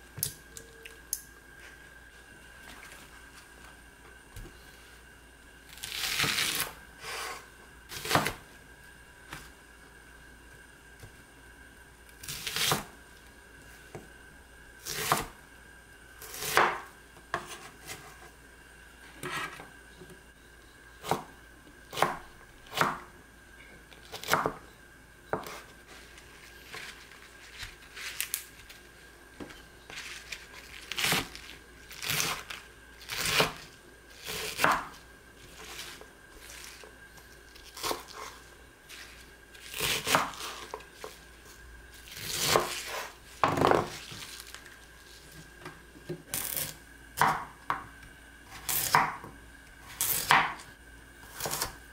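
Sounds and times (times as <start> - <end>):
knife slicing vegetables on board: 39.0 - 41.2, 42.1 - 44.0, 51.3 - 51.8.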